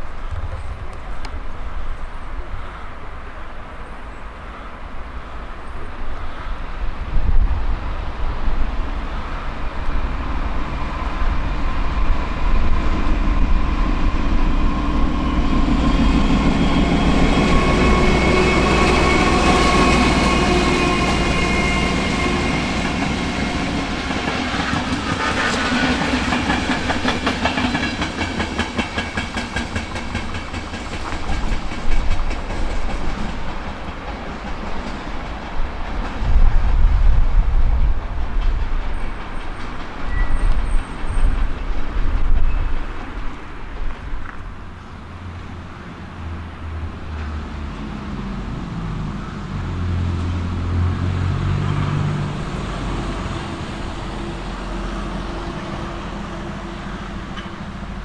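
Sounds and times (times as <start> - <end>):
train whine and rumble: 0.0 - 58.0
wheels clicking over rail joints: 22.5 - 45.5, 57.1 - 58.0.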